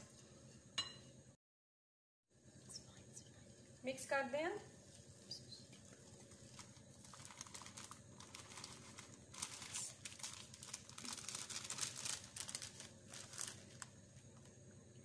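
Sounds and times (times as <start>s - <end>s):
plastic bag crinkling: 6.2s - 14.0s.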